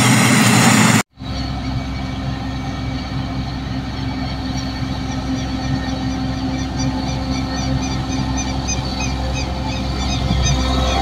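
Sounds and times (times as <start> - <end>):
loud rushing noise: 0.0 - 6.4
combine harvester engine running: 0.0 - 11.0.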